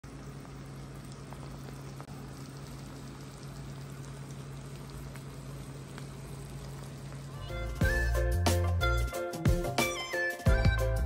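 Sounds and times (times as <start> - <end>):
steady low hum: 0.0 - 8.4
sauce bubbling and sizzling in a pan: 0.0 - 9.7.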